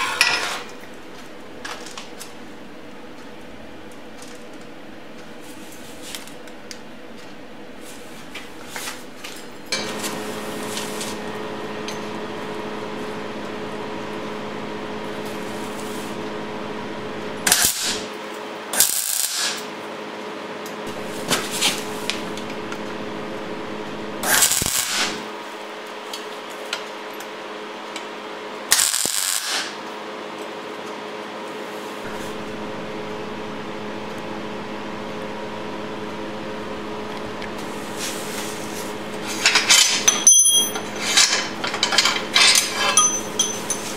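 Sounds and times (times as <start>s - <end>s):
machine hum: 9.0s - 17.6s, 20.8s - 25.4s, 32.0s - 43.9s
welding crackle: 14.9s - 18.1s, 18.8s - 19.7s, 20.9s - 25.4s, 28.7s - 29.8s, 32.0s - 40.1s, 40.7s - 43.9s
steel clanking: 39.2s - 43.9s.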